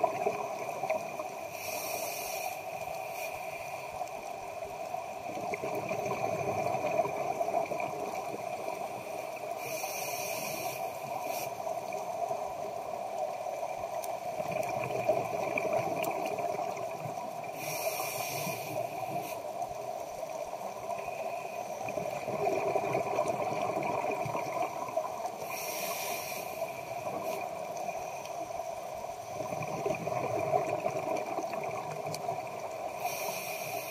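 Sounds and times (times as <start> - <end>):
exhaled bubbles rumbling: 0.0 - 1.2, 5.2 - 8.8, 14.4 - 17.3, 21.8 - 25.3, 29.3 - 32.9
regulator inhalation hiss: 1.3 - 4.0, 8.7 - 13.6, 17.4 - 20.4, 25.3 - 28.5, 32.8 - 33.9.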